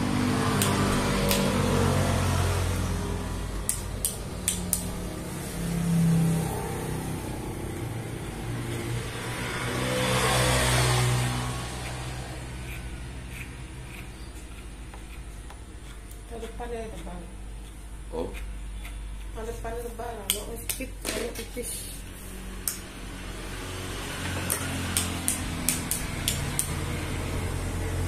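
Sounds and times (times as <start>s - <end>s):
electric hair clipper buzzing: 0.1s - 6.4s, 22.5s - 27.9s.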